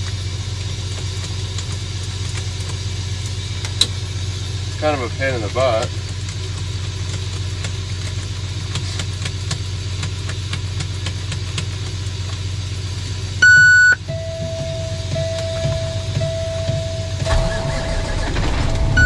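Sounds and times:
diesel engine idling: 0.0s - 19.0s
loud electronic beep: 13.4s - 19.0s
steady low-pitched tone: 13.4s - 19.0s.

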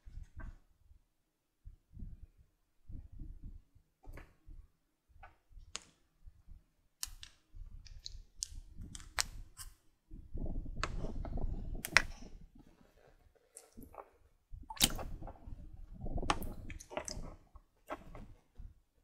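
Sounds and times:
pudding squelching: 14.7s - 15.4s, 16.2s - 18.2s.

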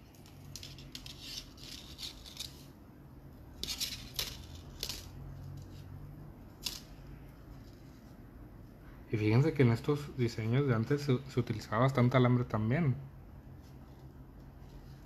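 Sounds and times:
metal wire clicking and rattling: 0.0s - 2.8s, 3.5s - 5.9s.

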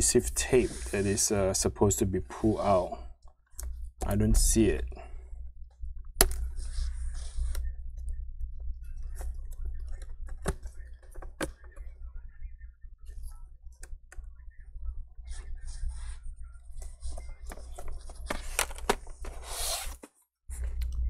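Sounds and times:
steady low hum: 0.0s - 19.4s
scraping rub: 0.4s - 1.3s.

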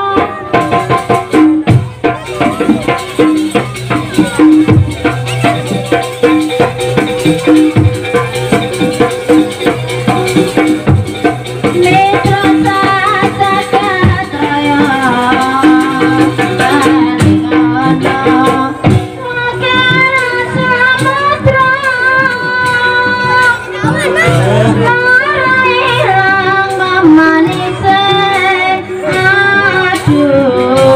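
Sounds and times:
person singing: 0.0s - 1.4s, 11.6s - 30.9s
hand-drum strokes: 0.0s - 30.9s
rattling percussion: 0.0s - 30.9s
gamelan ensemble: 0.2s - 19.7s.

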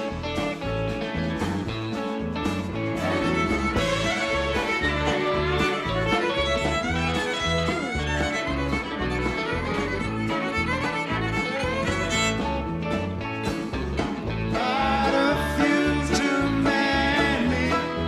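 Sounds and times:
live rock band playing: 0.0s - 18.0s
fiddle with sliding notes: 2.6s - 13.7s.

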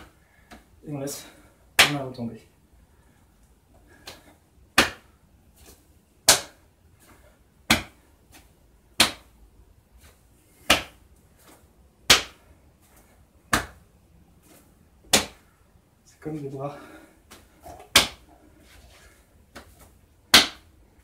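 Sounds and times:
hand slapping against body: 1.8s - 2.0s, 4.0s - 5.1s, 6.2s - 6.6s, 7.6s - 9.4s, 10.0s - 15.5s, 17.3s - 18.3s, 19.5s - 20.7s.

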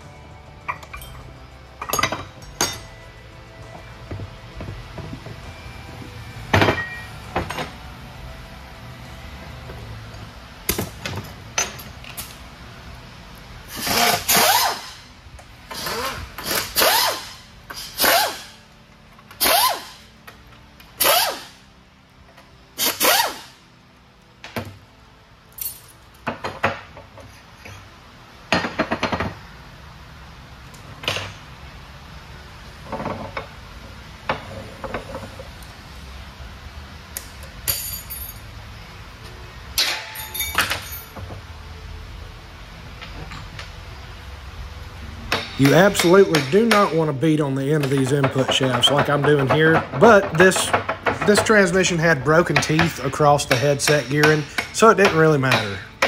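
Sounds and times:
pneumatic air hammer bursts: 13.7s - 15.1s, 15.7s - 18.6s, 19.3s - 20.1s, 21.0s - 21.6s, 22.8s - 23.6s.

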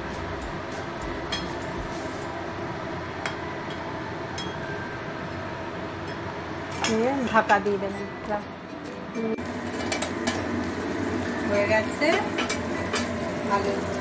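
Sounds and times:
gas stove burner rushing: 9.4s - 14.0s.

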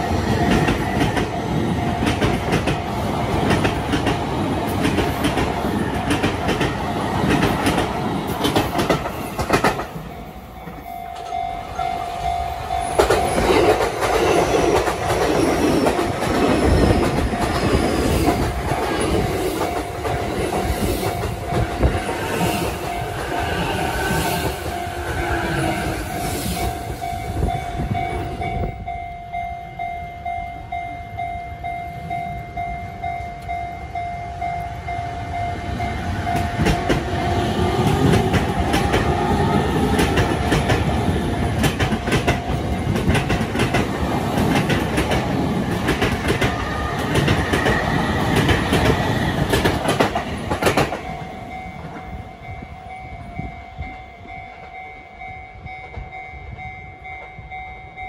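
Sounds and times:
level crossing alarm ringing: 0.0s - 3.3s, 8.8s - 41.1s, 50.5s - 58.0s
electric train passing: 0.0s - 58.0s
train wheels clacking over joints: 0.4s - 10.0s, 36.4s - 52.1s.

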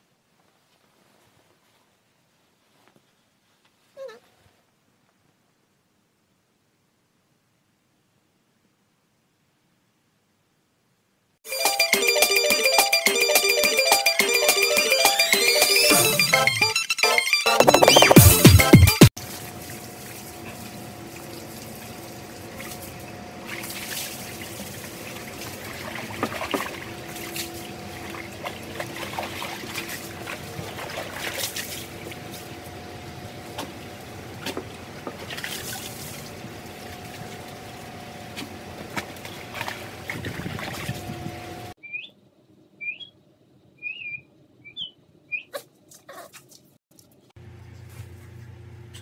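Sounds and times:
water sloshing in a tub: 19.2s - 32.7s, 33.4s - 41.3s.

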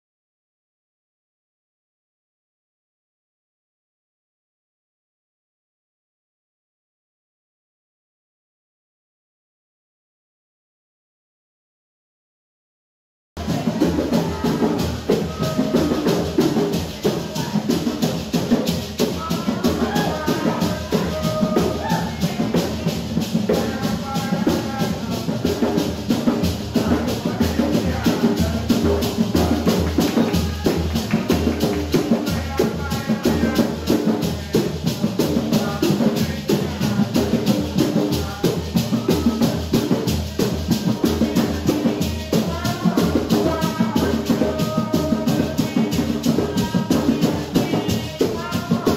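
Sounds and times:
hand drums playing fast beat: 13.4s - 48.9s
voices singing: 13.4s - 48.9s.

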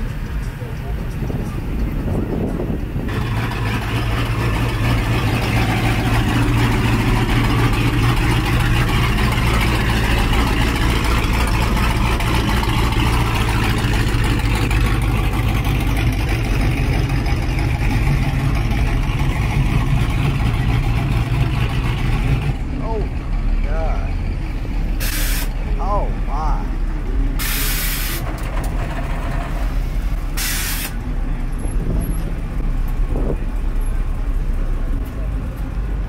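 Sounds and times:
truck engines idling: 0.0s - 36.0s.

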